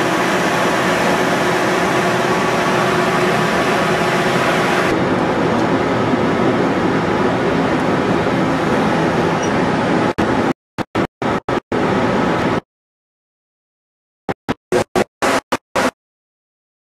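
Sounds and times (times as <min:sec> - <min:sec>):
diesel generator droning: 0:00.0 - 0:12.6.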